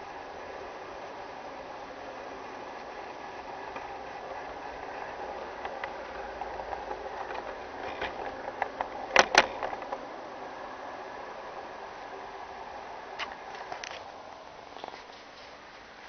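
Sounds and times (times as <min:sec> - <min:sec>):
wheel clicks at rail joints: 0:00.0 - 0:10.1
model train motor humming: 0:00.0 - 0:16.0.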